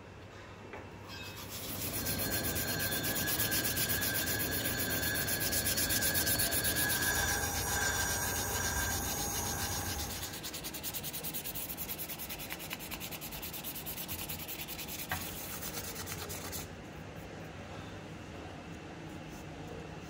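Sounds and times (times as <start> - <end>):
abrasive rubbing on knife: 1.1 - 12.3.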